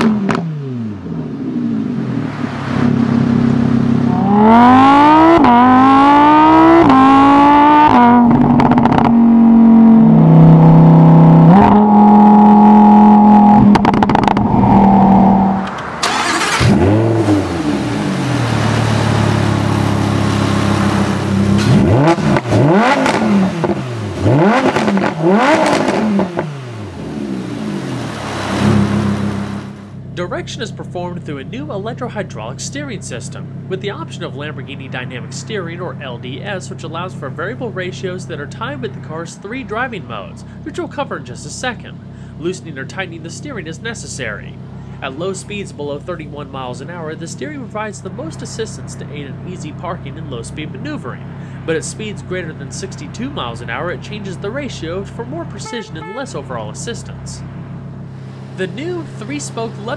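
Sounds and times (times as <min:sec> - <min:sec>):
sports car engine revving: 0:00.0 - 0:30.3, 0:41.8 - 0:59.9.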